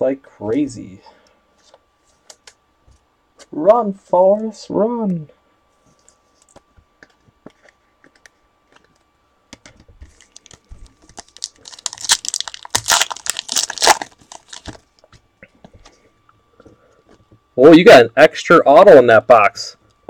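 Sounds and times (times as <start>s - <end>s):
foil wrapper crinkling: 10.0s - 14.9s.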